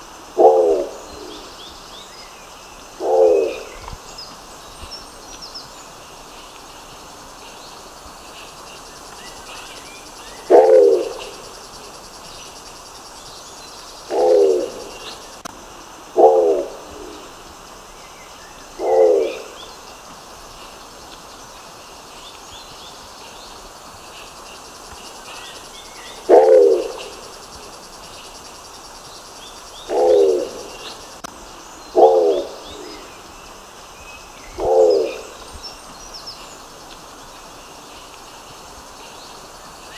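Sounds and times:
steady hiss: 0.0s - 39.9s
pigeon low calls: 10.4s - 11.4s, 14.1s - 15.0s, 26.2s - 27.2s, 29.9s - 30.8s.

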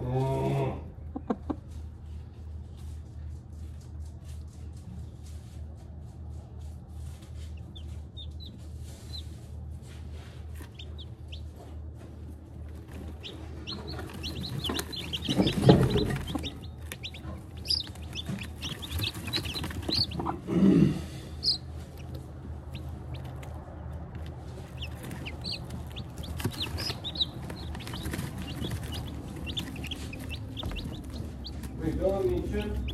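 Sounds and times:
hen clucking: 0.4s - 1.7s, 7.6s - 9.4s, 10.5s - 11.8s, 12.7s - 32.9s
chicks peeping: 1.0s - 1.8s, 6.7s - 32.9s.

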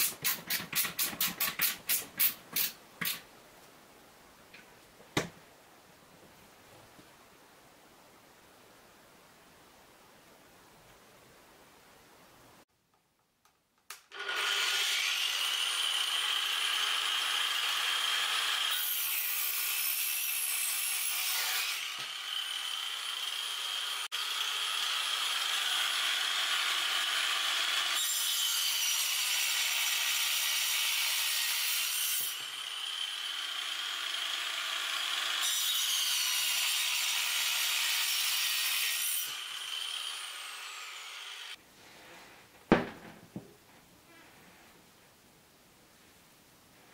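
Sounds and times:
angle grinder cutting wood: 14.1s - 41.6s.

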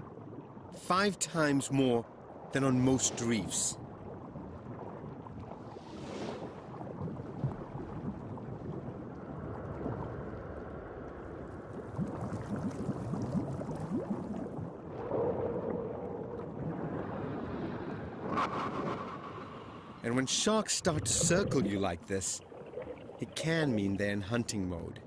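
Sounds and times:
wind on microphone: 20.9s - 21.8s.

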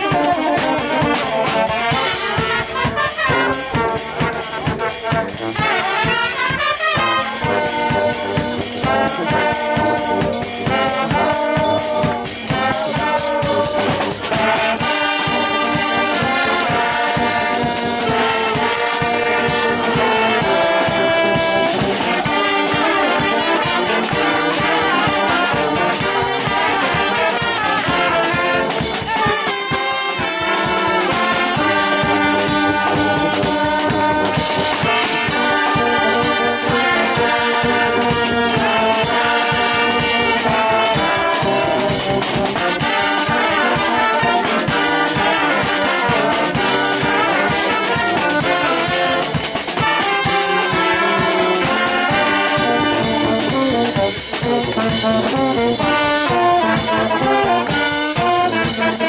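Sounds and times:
brass band playing lively tune: 0.0s - 59.0s.

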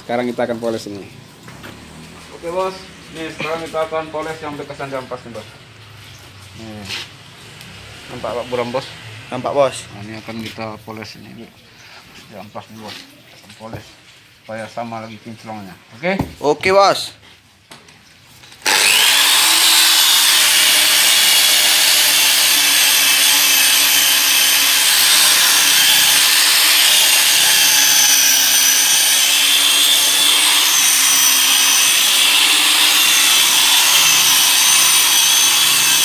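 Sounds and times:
electric polisher whine: 18.6s - 36.0s.

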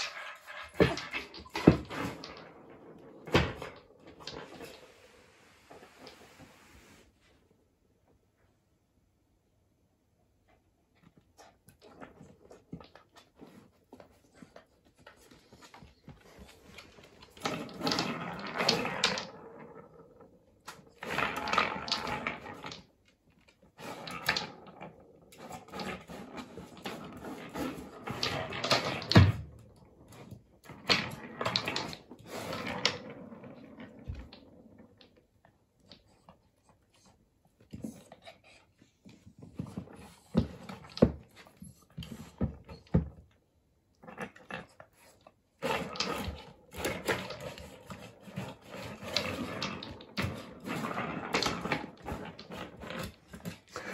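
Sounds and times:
wooden balls rolling and clattering: 0.0s - 5.1s, 11.7s - 36.6s, 45.5s - 53.9s.

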